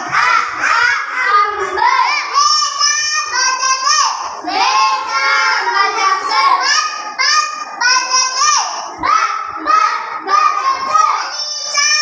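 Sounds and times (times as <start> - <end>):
child chanting: 0.0 - 12.0.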